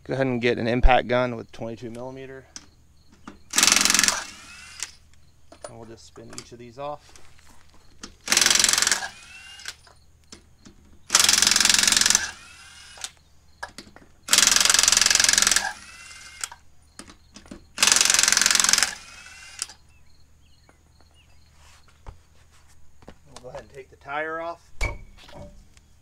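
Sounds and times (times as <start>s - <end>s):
impact wrench hammering: 8.3s - 9.3s, 14.3s - 16.5s, 17.8s - 19.1s.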